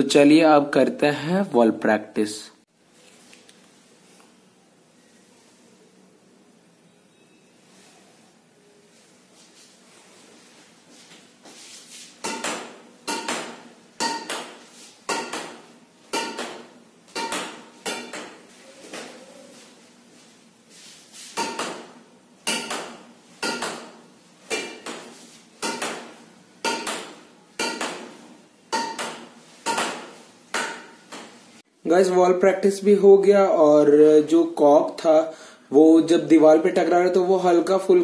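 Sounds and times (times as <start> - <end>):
racket hitting shuttlecock: 12.2 - 19.1, 21.3 - 31.4.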